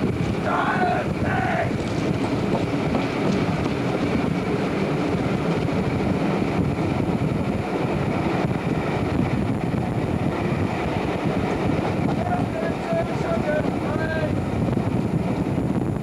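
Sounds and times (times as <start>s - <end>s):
train running on track: 0.0s - 16.0s.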